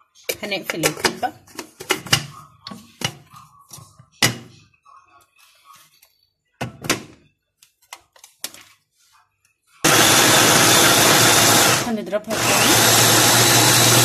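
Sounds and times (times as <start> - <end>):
food chopper motor running: 9.8 - 14.0.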